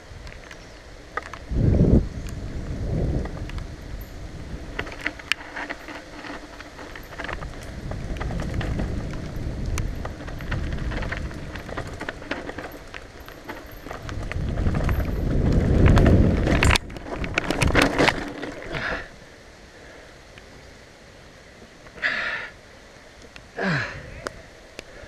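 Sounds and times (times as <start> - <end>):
wind on microphone: 1.3 - 5.5, 7.0 - 12.9, 13.5 - 18.9
mountain bike rattling on dirt trail: 2.3 - 19.3
bike crash knocks and clatters: 4.8 - 18.8.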